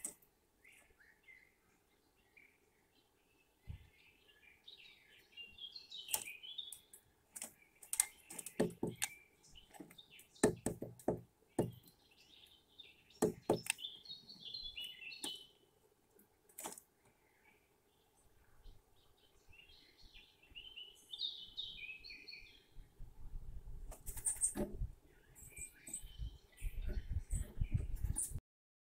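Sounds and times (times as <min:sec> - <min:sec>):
birds chirping: 0:00.0 - 0:28.4
woodpecker knocking on wood: 0:07.4 - 0:11.9, 0:13.2 - 0:13.8.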